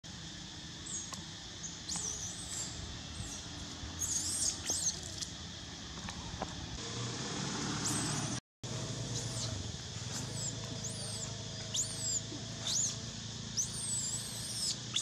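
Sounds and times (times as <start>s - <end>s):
baby monkey squealing: 4.0s - 5.2s, 9.2s - 9.6s, 10.2s - 13.0s, 13.6s - 15.0s.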